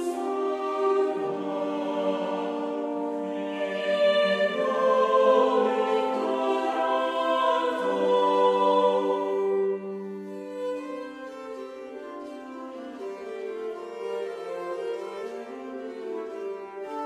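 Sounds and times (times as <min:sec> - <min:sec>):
choir singing: 0:00.0 - 0:12.1
slow music with held notes: 0:00.0 - 0:17.0.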